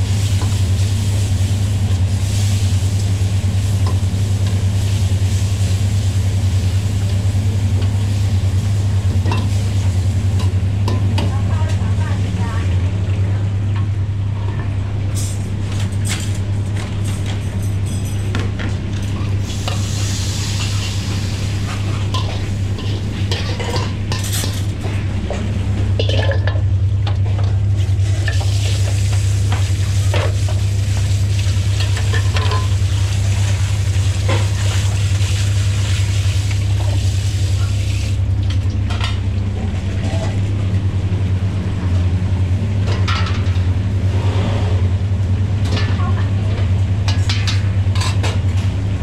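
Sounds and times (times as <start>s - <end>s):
steady low hum: 0.0s - 49.0s
food sizzling: 19.4s - 23.6s.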